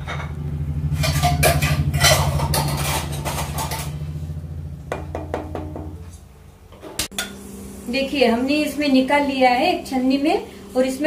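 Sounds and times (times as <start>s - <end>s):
steady low hum: 0.0s - 11.0s
wooden spatula scraping pasta in pan: 1.0s - 4.0s.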